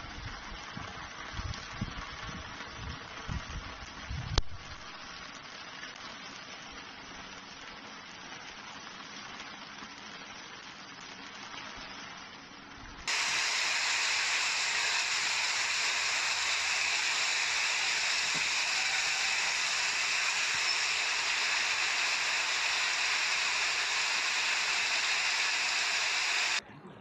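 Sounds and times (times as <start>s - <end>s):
heavy rain on pavement: 0.4s - 11.8s.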